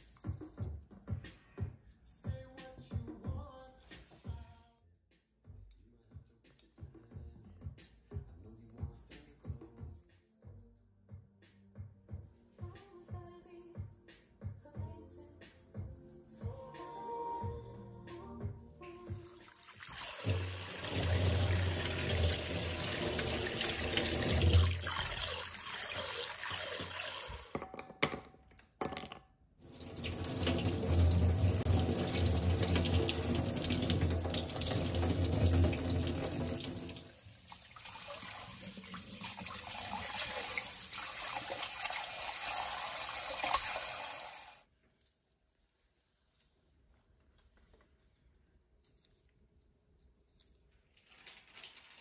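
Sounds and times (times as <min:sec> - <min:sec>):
tap water running into sink: 0:19.4 - 0:27.5, 0:29.6 - 0:44.6
water pouring into bowl: 0:19.4 - 0:27.5, 0:29.6 - 0:44.6.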